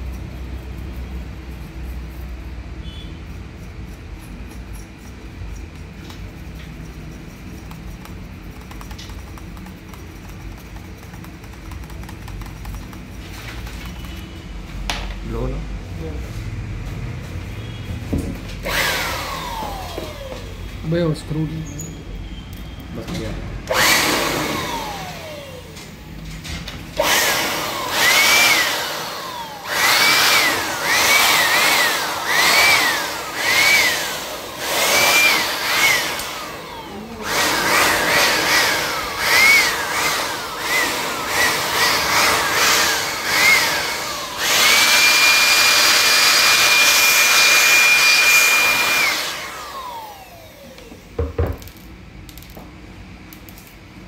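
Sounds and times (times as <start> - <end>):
electric air blower whining: 18.6 - 21.2, 23.6 - 51.8.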